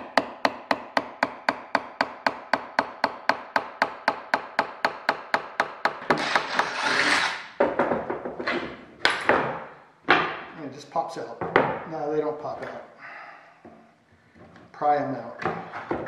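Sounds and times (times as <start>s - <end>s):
hammer tapping metal on wood: 0.0s - 6.2s.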